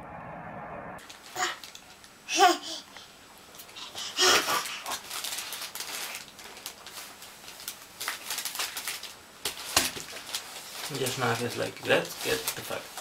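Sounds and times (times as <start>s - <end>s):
newspaper crinkling and rustling: 1.0s - 2.1s, 4.2s - 13.0s.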